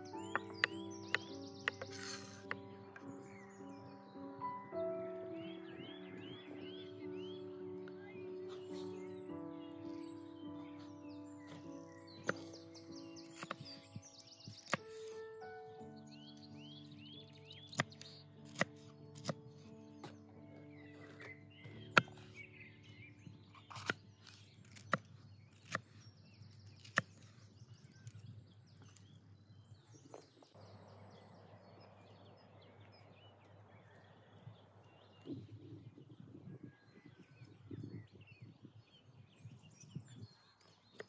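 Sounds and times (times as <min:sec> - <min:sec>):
songbirds chirping: 0:00.0 - 0:41.0
knife chopping on wooden board: 0:17.7 - 0:19.4.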